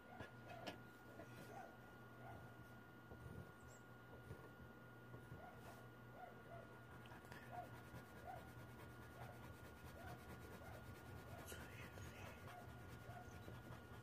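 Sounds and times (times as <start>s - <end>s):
low steady hum: 0.0s - 14.0s
thin steady whine: 0.0s - 14.0s
pencil scratching on paper: 6.9s - 14.0s.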